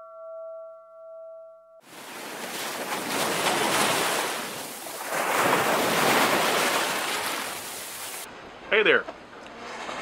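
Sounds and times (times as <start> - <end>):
waves washing in: 1.8 - 8.5.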